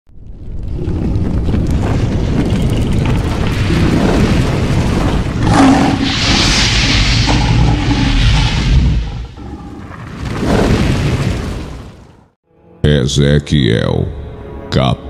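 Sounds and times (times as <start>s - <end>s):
deep rumbling boom: 0.2s - 11.6s
rushing hiss: 5.4s - 9.4s.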